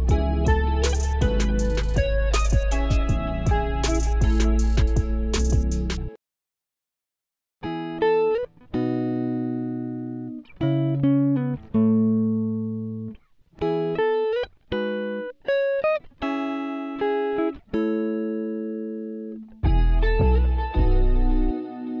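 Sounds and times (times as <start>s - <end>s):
plucked guitar-like melody: 0.0s - 6.2s, 7.6s - 22.0s.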